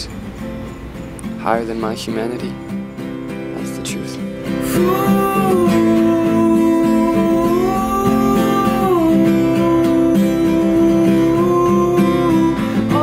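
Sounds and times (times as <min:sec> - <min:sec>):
strummed acoustic guitar: 0:00.0 - 0:13.0
man singing long notes: 0:04.6 - 0:13.0.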